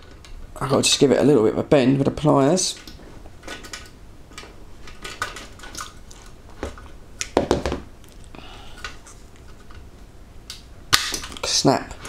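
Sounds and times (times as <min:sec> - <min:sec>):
metal parts clicking and clinking: 0:02.7 - 0:06.4
metal parts clattering: 0:02.8 - 0:06.4.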